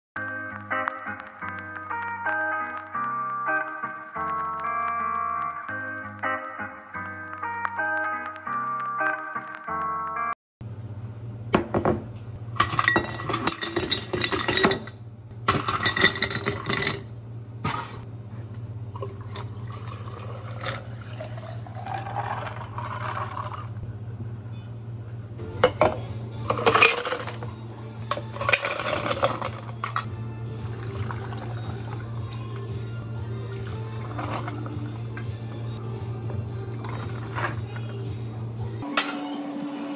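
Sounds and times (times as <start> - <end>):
low machine hum: 10.6 - 39.9
ice cubes and glassware clinking: 12.6 - 14.9, 15.5 - 18.0, 19.0 - 23.7, 26.5 - 30.1
water poured into pitcher of ice: 19.0 - 23.7, 30.6 - 32.2, 33.6 - 34.8, 36.8 - 37.6.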